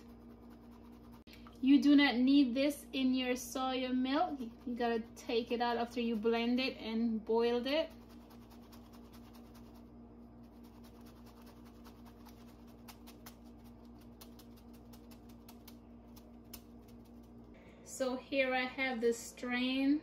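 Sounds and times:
faint electrical hum: 0.0s - 20.0s.

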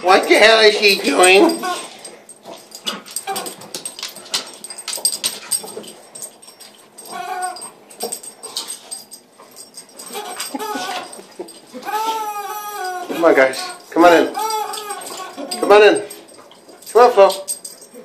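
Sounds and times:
dog chewing toy: 0.3s - 16.8s
toy squeaking: 10.1s - 11.2s, 11.8s - 15.8s.

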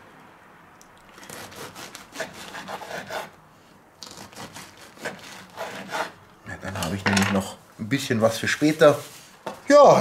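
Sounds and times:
knife sawing through bread crust: 1.2s - 3.4s, 4.0s - 6.2s.

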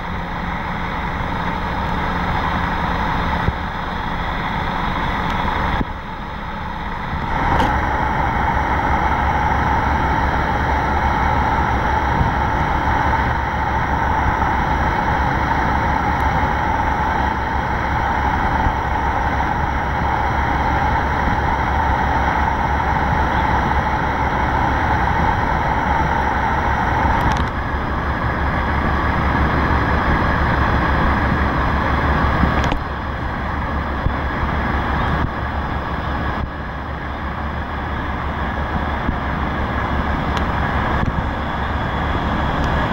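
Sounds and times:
boat engines droning with whine: 0.0s - 42.9s.

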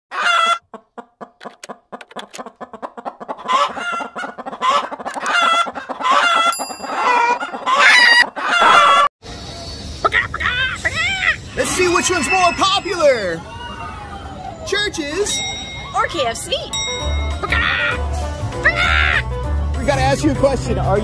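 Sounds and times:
chicken clucking and squawking: 0.1s - 9.1s
bright chime: 6.5s - 7.4s, 12.0s - 13.4s, 15.2s - 17.8s.

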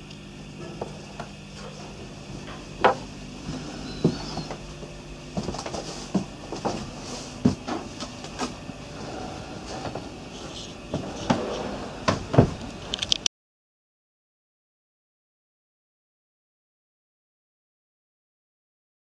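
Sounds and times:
steady low hum: 0.0s - 13.3s
footsteps on wooden steps: 2.3s - 8.8s.

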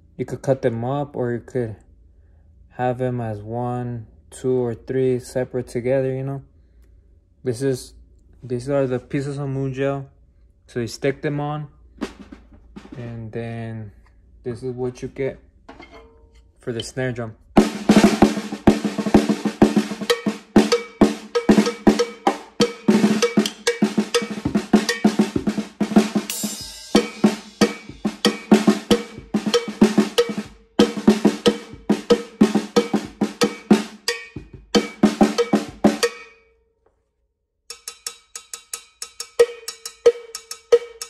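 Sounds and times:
damped snare drum rolls: 12.0s - 13.4s, 17.6s - 36.2s.

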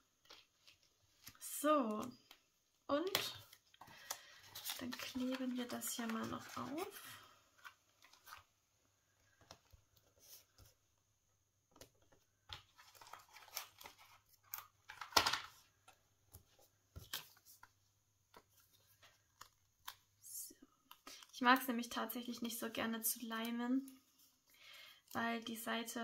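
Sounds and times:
paper rustling and crinkling: 0.1s - 1.6s, 3.0s - 8.6s, 11.7s - 20.1s.

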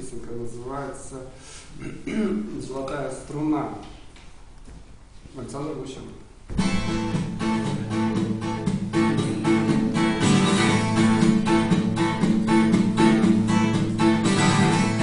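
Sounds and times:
acoustic guitar strumming chords: 6.5s - 15.0s.

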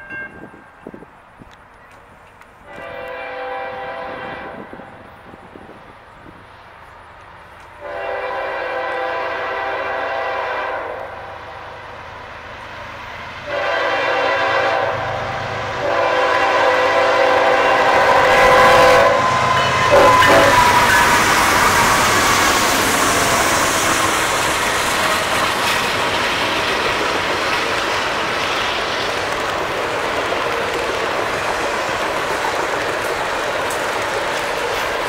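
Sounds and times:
rumble of oncoming train: 0.0s - 35.0s
train air horn blasts: 2.6s - 5.0s, 7.7s - 11.8s, 13.4s - 24.2s.

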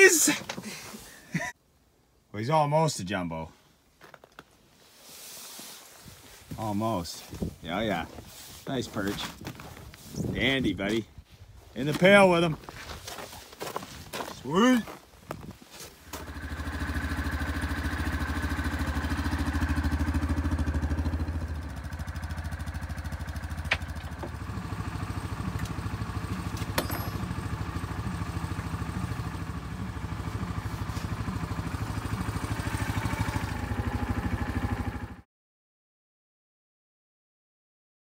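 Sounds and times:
vehicle engine idling: 16.1s - 35.2s.

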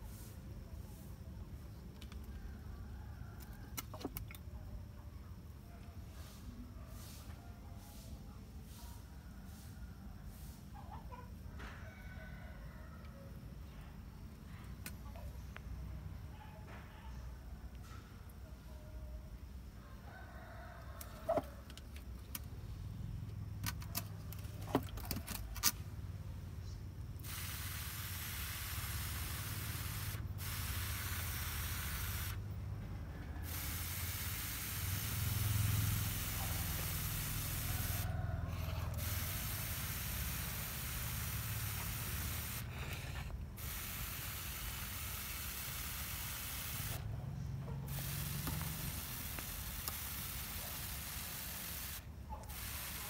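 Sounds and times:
garden sprayer hissing: 0.0s - 2.3s, 6.0s - 10.8s, 27.0s - 53.0s.

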